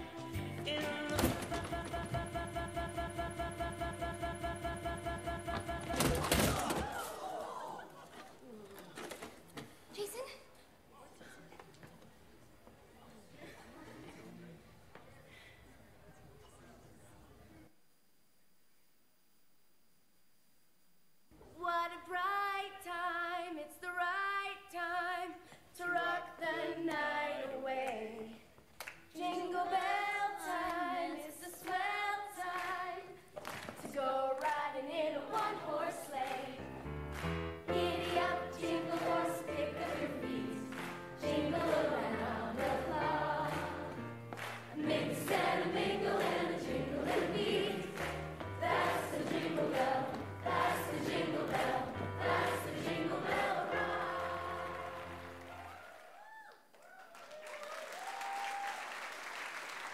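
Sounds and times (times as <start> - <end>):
woman singing: 0.0 - 6.2, 21.6 - 28.5, 29.1 - 33.2, 33.8 - 36.5.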